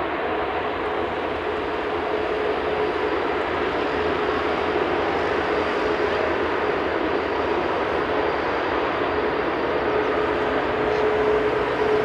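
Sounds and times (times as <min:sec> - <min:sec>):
jet engines humming: 0:00.0 - 0:12.0.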